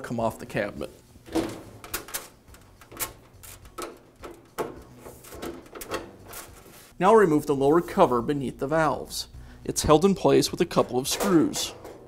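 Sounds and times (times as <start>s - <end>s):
sheet metal door knocking and clicking: 1.3s - 2.2s.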